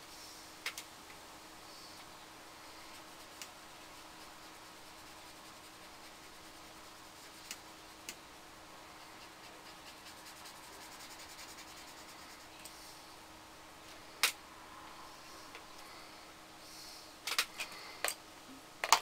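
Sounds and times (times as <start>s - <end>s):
faint hum: 0.0s - 19.0s
paintbrush rubbing on paper: 2.6s - 7.6s, 8.8s - 12.9s.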